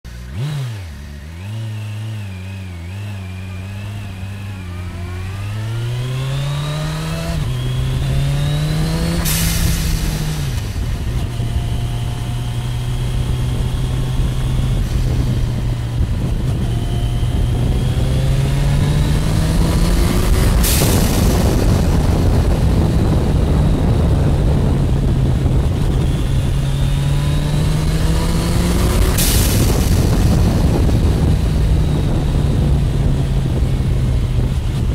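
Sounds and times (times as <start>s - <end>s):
motorcycle engine accelerating: 0.0s - 34.9s
blow-off valve hiss: 9.2s - 10.4s.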